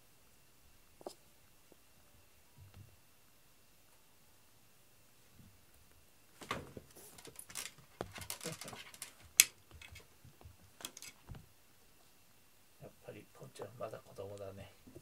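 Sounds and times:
cat toy rustling and tapping: 0:06.4 - 0:11.5.

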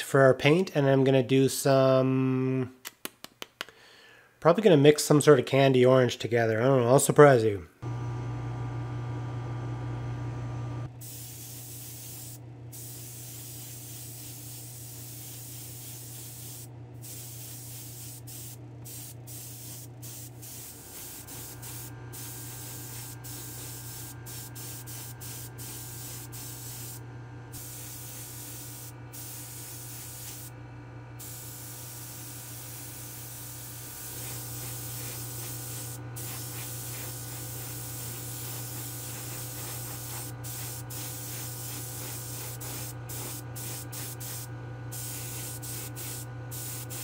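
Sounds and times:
airbrush spraying hiss: 0:11.0 - 0:27.0, 0:27.6 - 0:30.5, 0:31.2 - 0:47.0.

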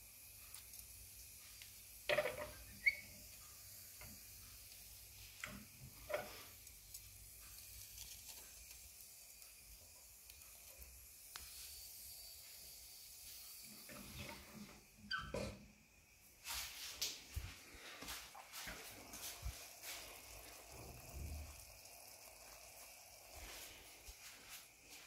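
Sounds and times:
wood fire hissing: 0:00.0 - 0:25.0
metal utensil scraping stove: 0:02.1 - 0:03.2, 0:05.4 - 0:06.7.

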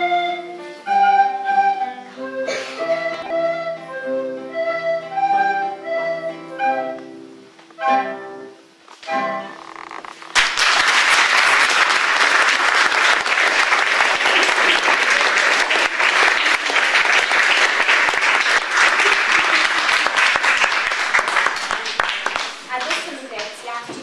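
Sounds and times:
recorder ensemble note: 0:00.0 - 0:09.8
audience applause: 0:10.3 - 0:23.6.

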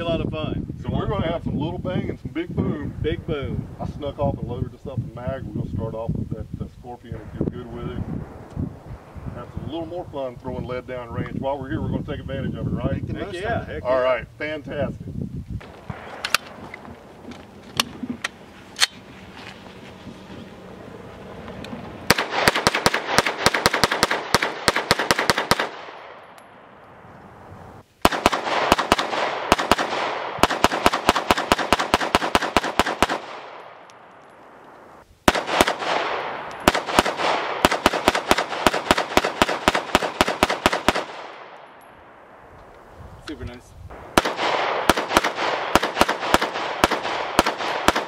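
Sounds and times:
rapid gunshots: 0:22.1 - 0:26.2, 0:28.0 - 0:33.6, 0:35.3 - 0:41.5, 0:44.1 - 0:48.0.

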